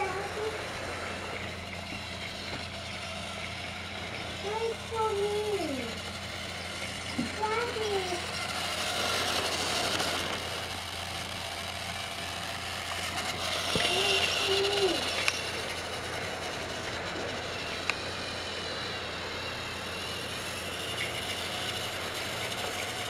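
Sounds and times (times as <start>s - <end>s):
toy train motor whine: 0.0s - 23.0s
sharp clicks: 15.1s - 15.5s.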